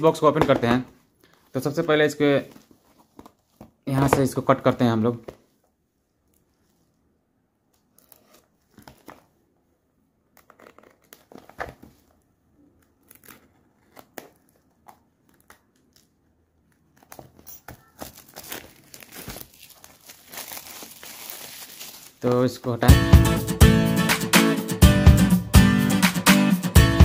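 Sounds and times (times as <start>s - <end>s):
plastic film crinkling: 10.4s - 22.8s.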